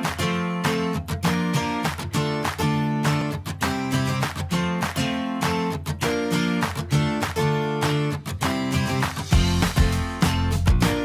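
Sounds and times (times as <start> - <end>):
strummed guitar chords: 0.0 - 11.0.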